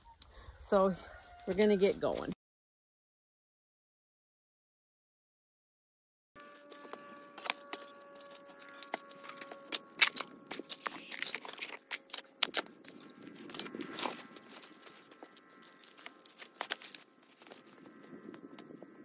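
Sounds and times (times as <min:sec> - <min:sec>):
shovel scraping into soil: 0:10.7 - 0:17.8.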